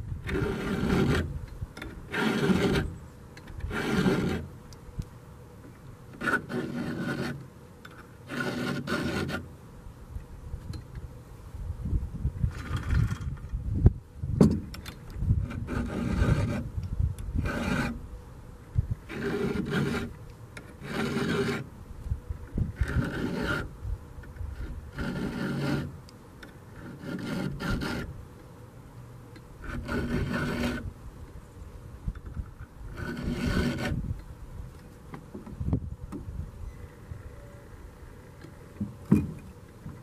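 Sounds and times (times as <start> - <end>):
file rasping on chainsaw chain: 0.3 - 1.3, 2.0 - 3.0, 3.6 - 4.5, 6.2 - 7.4, 8.3 - 9.4, 15.4 - 16.7, 17.4 - 18.0, 19.1 - 21.7, 22.8 - 23.7, 24.6 - 25.9, 26.8 - 28.1, 29.6 - 30.9, 32.9 - 34.0.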